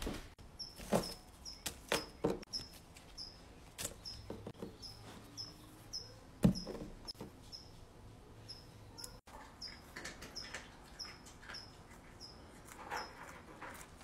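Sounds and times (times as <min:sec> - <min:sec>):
rabbit nibbling: 0:09.0 - 0:14.0.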